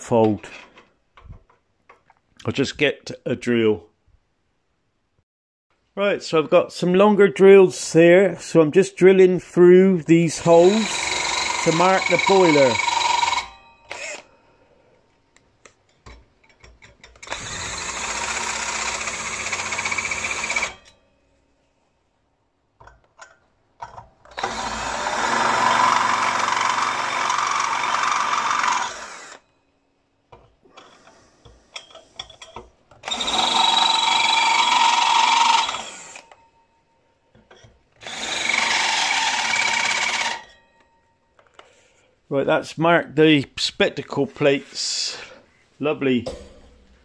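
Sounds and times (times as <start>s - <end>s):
cordless drill running: 10.4s - 14.3s, 17.2s - 20.9s, 24.3s - 29.4s, 33.0s - 36.4s, 38.0s - 40.6s.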